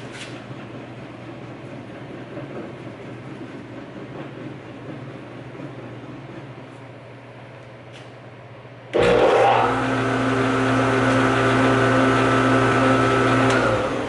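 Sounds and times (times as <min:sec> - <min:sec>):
jointer-planer spinning down: 0:08.9 - 0:14.0
jointer-planer motor running: 0:09.0 - 0:14.0.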